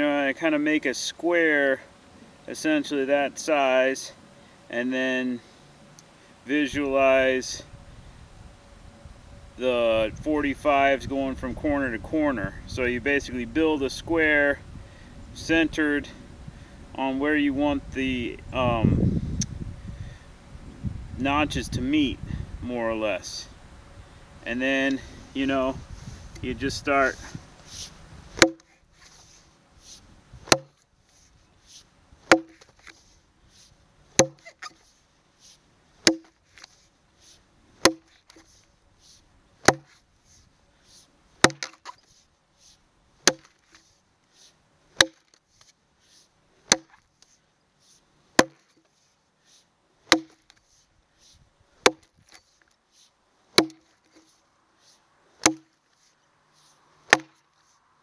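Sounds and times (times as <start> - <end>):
axe chopping log: 28.4 - 28.8, 30.4 - 30.8, 32.2 - 33.0, 34.2 - 34.8, 36.0 - 36.7, 37.8 - 38.6, 39.6 - 40.0, 41.4 - 42.0, 43.2 - 43.9, 45.0 - 45.4, 46.7 - 47.0, 48.4 - 48.8, 50.1 - 50.6, 51.8 - 52.4, 53.6 - 54.3, 55.4 - 55.8, 57.1 - 57.4.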